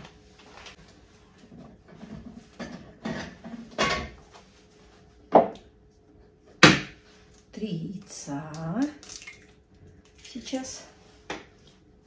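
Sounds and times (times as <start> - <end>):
dishes and utensils clattering: 1.9 - 4.2.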